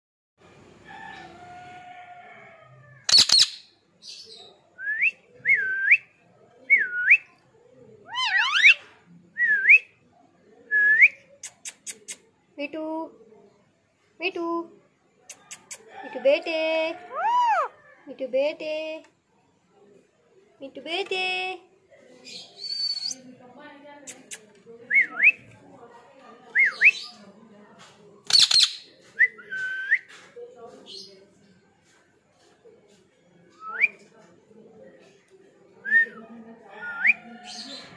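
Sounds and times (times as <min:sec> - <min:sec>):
parakeet screech: 0:03.1 - 0:03.5, 0:08.1 - 0:08.8
short sharp bird chirps: 0:03.1 - 0:04.2
bird whistles: 0:22.6 - 0:23.2.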